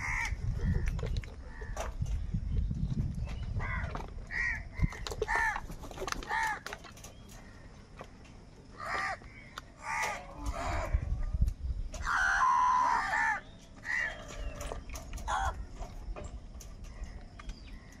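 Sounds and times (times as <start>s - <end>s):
crows cawing: 0.0s - 0.4s, 3.6s - 6.7s, 8.8s - 11.0s, 12.0s - 14.5s, 15.2s - 15.7s.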